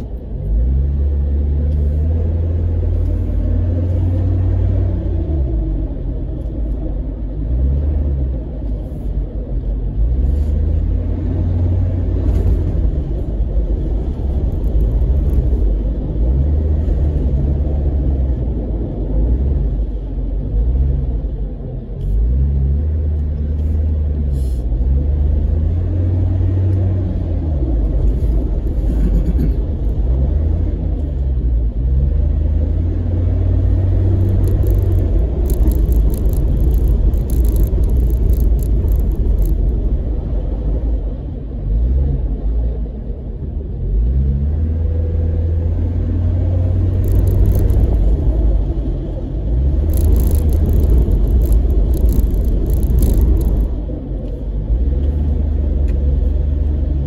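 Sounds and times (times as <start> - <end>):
vehicle engine rumble: 0.0 - 57.0
light rattling clicks: 34.1 - 39.8, 46.9 - 48.1, 49.8 - 54.4.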